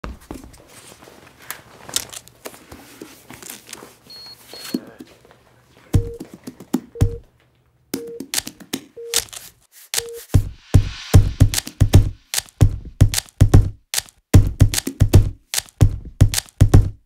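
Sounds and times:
countdown beep with low thump: 0:06.0 - 0:06.2, 0:07.0 - 0:07.2, 0:08.0 - 0:08.3
short high beeps: 0:07.0 - 0:07.2, 0:09.0 - 0:09.2, 0:10.0 - 0:10.3.

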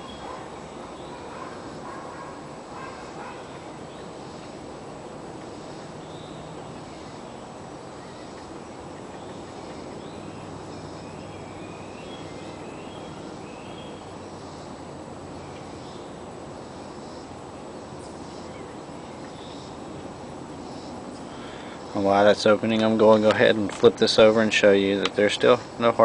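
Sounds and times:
outdoor background noise: 0:00.0 - 0:26.0
faint bird chirps: 0:05.4 - 0:17.4.

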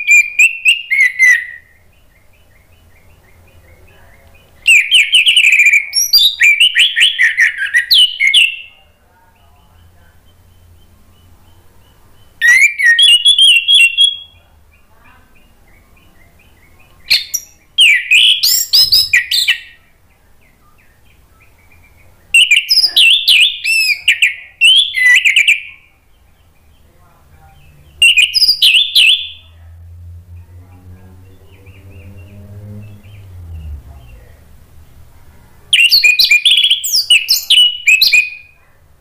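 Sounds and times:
thrush singing: 0:27.5 - 0:38.5.

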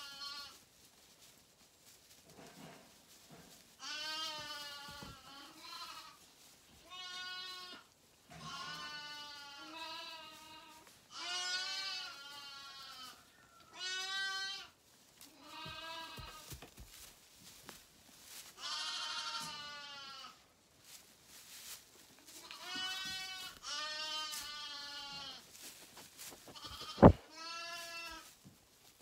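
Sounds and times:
sheep bleating: 0:03.8 - 0:06.2, 0:06.8 - 0:14.7, 0:15.4 - 0:16.5, 0:18.6 - 0:20.4, 0:22.4 - 0:25.4, 0:26.5 - 0:28.3.

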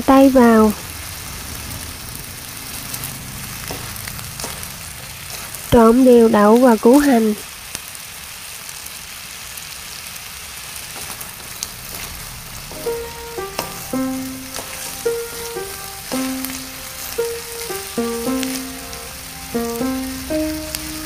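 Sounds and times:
vegetables sizzling in a wok: 0:00.0 - 0:21.0
music of held notes: 0:12.7 - 0:21.0.

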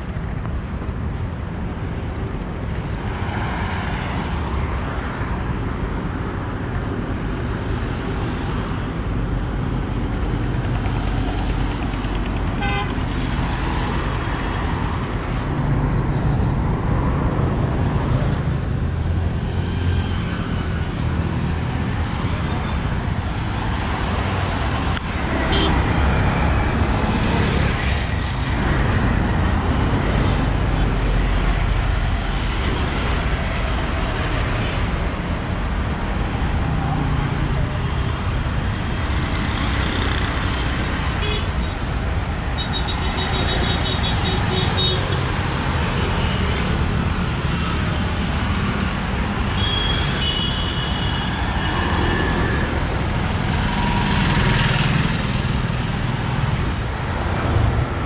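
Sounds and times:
road traffic passing: 0:00.0 - 0:58.0
vehicle horns beeping: 0:12.6 - 0:13.0, 0:25.5 - 0:25.8, 0:49.6 - 0:51.3.

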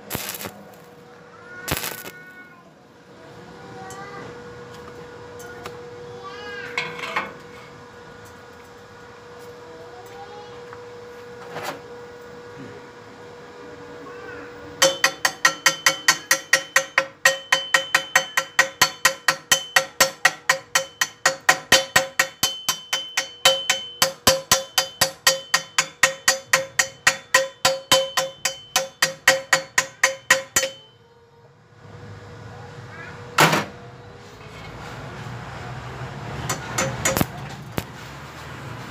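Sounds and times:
chipping hammer striking steel tube: 0:01.7 - 0:02.2, 0:14.8 - 0:30.9, 0:36.4 - 0:37.5
sharp metal knock: 0:14.8 - 0:31.0, 0:36.5 - 0:37.4.

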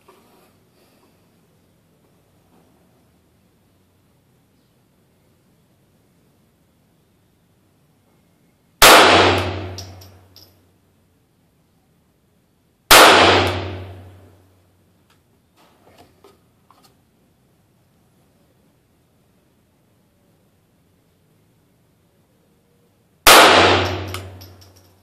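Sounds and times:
pistol shots: 0:08.8 - 0:10.1, 0:12.9 - 0:14.2, 0:23.2 - 0:24.6.

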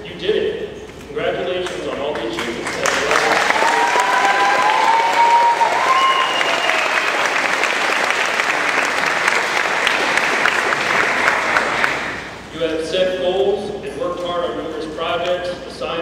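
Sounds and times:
audience applauding: 0:02.2 - 0:12.4
high cheer: 0:03.0 - 0:12.2.

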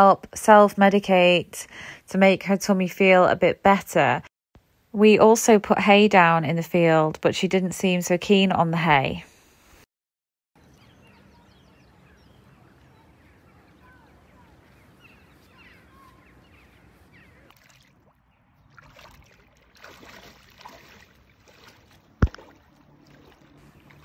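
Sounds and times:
small birds chirping: 0:10.6 - 0:19.5
water sloshing and splashing: 0:17.4 - 0:24.0.

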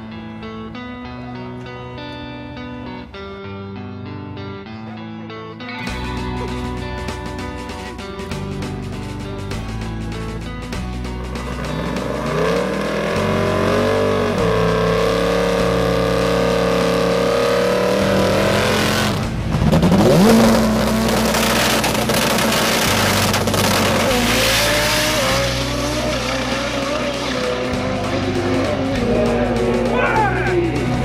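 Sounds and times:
race car engine high revs: 0:11.4 - 0:30.0
race car launching: 0:16.7 - 0:29.6.

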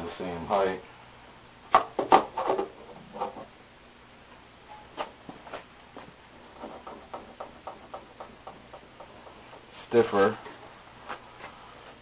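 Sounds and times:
pendulum oscillator knocking: 0:06.6 - 0:09.4.

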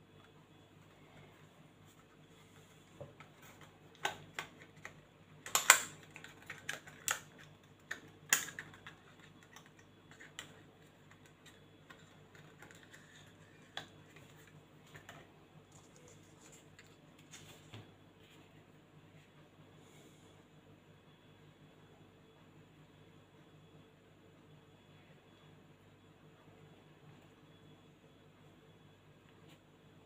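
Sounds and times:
plastic package clicks and crackles: 0:03.9 - 0:14.3.

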